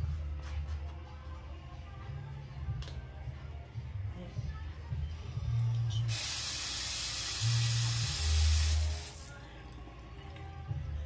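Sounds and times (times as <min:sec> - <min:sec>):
tap water spraying into basin: 0:06.1 - 0:09.3.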